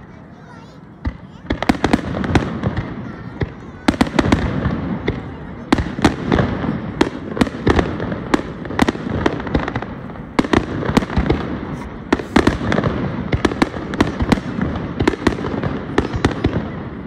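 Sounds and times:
fireworks rumble and crackle: 0.0s - 17.0s.

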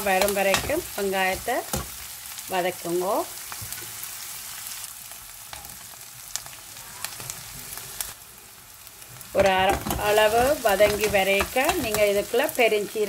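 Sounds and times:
onions sizzling in a pot: 0.0s - 13.0s.

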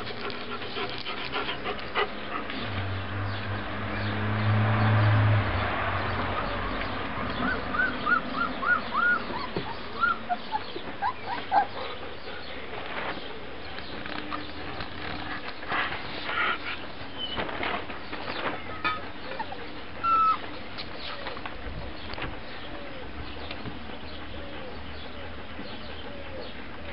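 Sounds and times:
puppies squeaking and whimpering: 6.3s - 13.2s, 13.9s - 21.4s.

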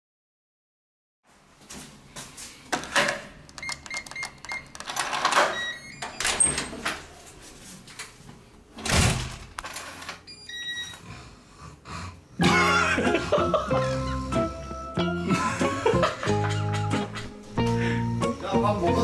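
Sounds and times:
electronic lock chime: 3.6s - 4.8s, 5.5s - 6.3s
keypad short beeps: 3.6s - 4.9s.

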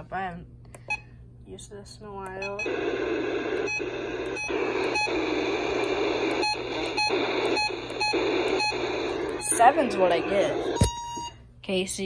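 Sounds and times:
radio static hiss: 2.5s - 11.0s.

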